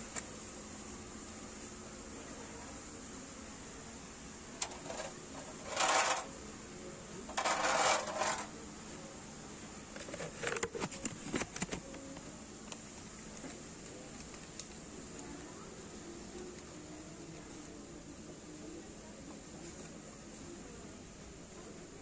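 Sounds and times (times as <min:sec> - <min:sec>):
plates scraping on metal shelf: 0:04.6 - 0:06.3, 0:07.3 - 0:08.5.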